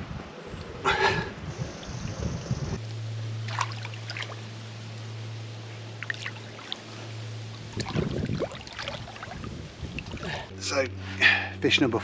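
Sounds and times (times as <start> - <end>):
low hum: 0.0 - 12.0
water splashing: 3.3 - 5.0, 5.8 - 10.5.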